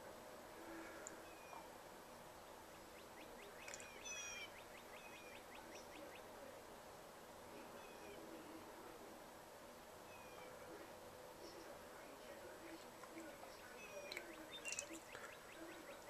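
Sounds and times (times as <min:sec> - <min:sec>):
small birds calling: 0:00.7 - 0:01.8, 0:02.4 - 0:06.5, 0:07.6 - 0:08.4, 0:10.0 - 0:10.8, 0:12.3 - 0:16.0.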